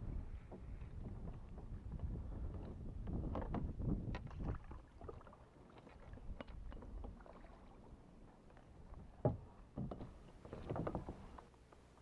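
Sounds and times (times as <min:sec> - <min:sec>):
kayak paddle pulling through water: 0:00.0 - 0:11.5
paddle knocks against kayak: 0:00.4 - 0:04.8, 0:09.0 - 0:11.4
small splashes: 0:04.2 - 0:07.9.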